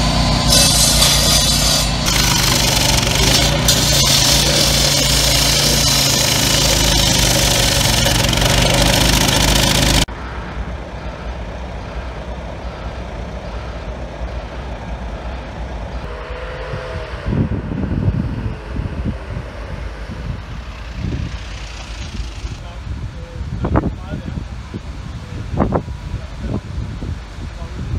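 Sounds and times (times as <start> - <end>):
floor saw running: 0.0 - 10.1
ambulance engine rumbling: 0.0 - 16.1
outdoor background noise: 0.0 - 27.9.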